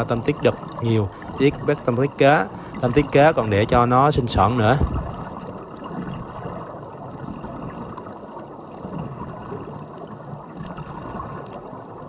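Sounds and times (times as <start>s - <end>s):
underwater bubbles gurgling: 0.0s - 12.0s.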